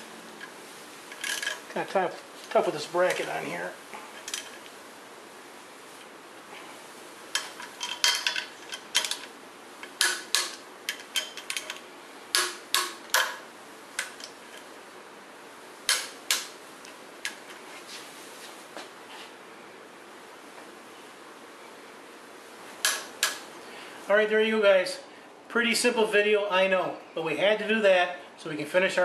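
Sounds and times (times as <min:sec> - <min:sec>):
ratchet and socket clinking: 0:07.4 - 0:11.8.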